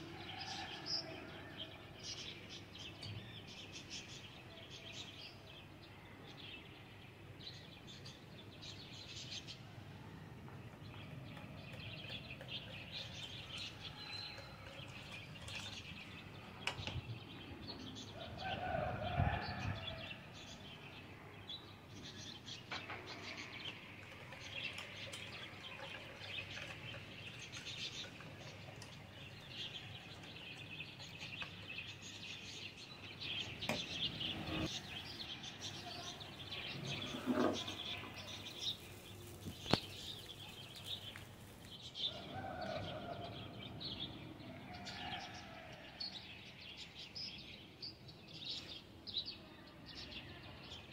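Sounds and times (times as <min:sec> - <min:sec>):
small birds chirping: 0:00.0 - 0:50.9.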